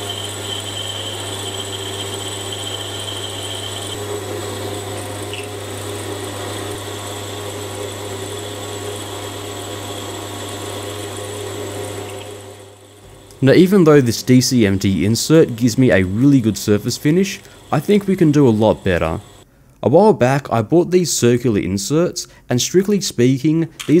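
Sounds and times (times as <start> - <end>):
lathe cutting steel: 0.0 - 19.4
metal lathe motor hum: 0.0 - 19.4.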